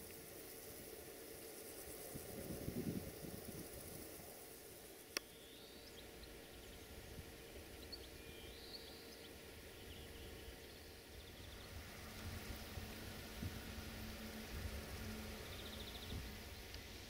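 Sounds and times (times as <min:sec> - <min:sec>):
small birds chirping: 0:00.0 - 0:14.0, 0:14.7 - 0:17.0.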